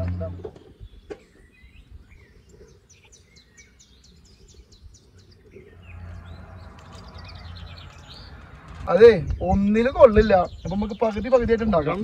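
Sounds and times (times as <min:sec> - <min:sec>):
birds chirping: 0:00.0 - 0:12.0
low rumbling hiss: 0:05.5 - 0:11.0.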